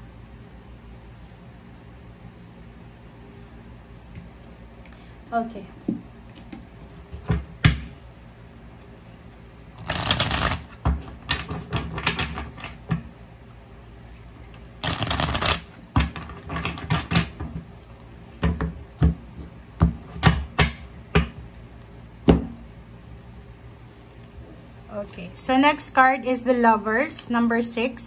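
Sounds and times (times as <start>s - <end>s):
cards being riffle-shuffled: 9.8s - 12.7s, 14.8s - 15.8s.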